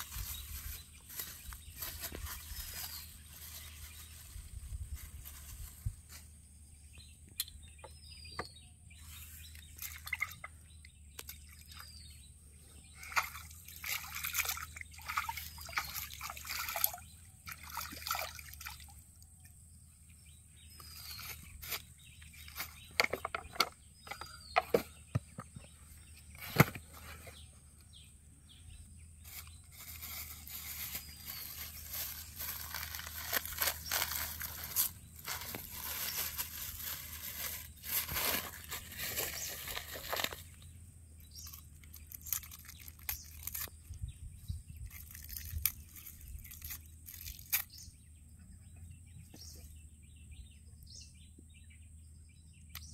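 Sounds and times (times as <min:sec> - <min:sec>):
plastic bag rustling: 0:00.0 - 0:06.4, 0:29.2 - 0:40.6
bird chirping: 0:00.0 - 0:52.9
bait splashing into pond: 0:13.0 - 0:19.0.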